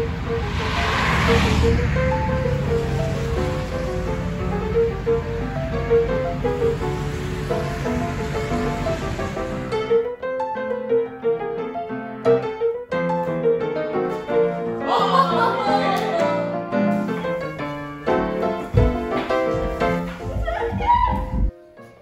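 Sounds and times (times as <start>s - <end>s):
brief gliding sound: 0.0s - 4.9s
piano melody: 0.0s - 22.0s
low thump: 18.8s - 19.1s.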